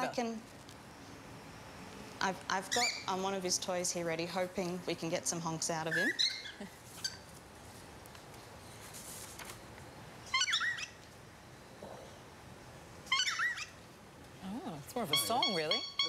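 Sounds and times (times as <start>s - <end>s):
cockatiel high-pitched swooping calls: 10.3s - 11.0s, 13.1s - 13.8s.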